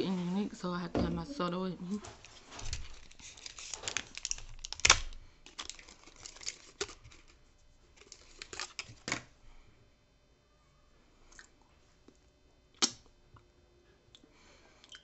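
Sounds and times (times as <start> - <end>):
plastic wrapper crinkling: 2.0 - 9.2.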